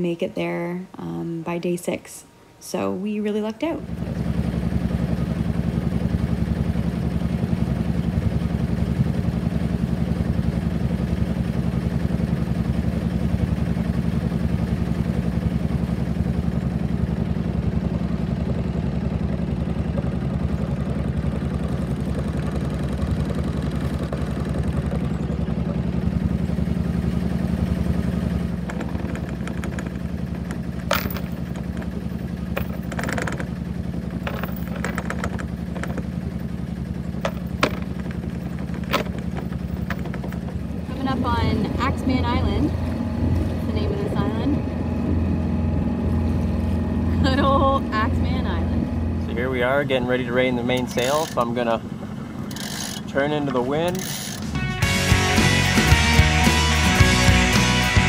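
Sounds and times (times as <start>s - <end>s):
boat motor idling: 3.7s - 58.0s
anchor clanking and rattling: 28.5s - 40.9s, 50.6s - 51.6s, 52.4s - 54.6s.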